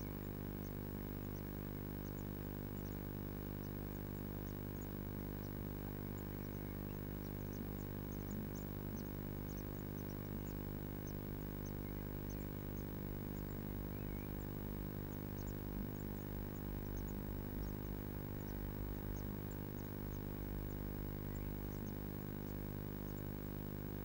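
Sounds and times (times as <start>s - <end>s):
low hum: 0.0s - 24.0s
nestlings cheeping: 0.0s - 24.0s.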